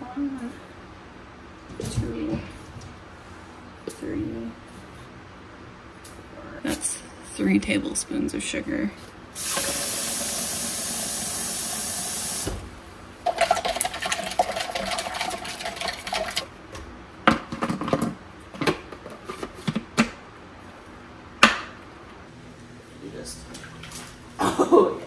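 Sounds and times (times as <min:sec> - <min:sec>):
faucet running into cup: 0:09.4 - 0:12.5, 0:13.3 - 0:16.5
spoon stirring in plastic cup: 0:13.3 - 0:16.5.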